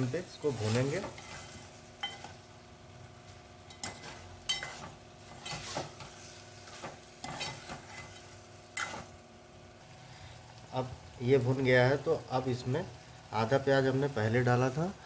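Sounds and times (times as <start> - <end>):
food sizzling in oil: 0.0 - 15.0
metal ladle scraping a pot: 1.0 - 2.4, 3.7 - 6.1, 6.7 - 9.1.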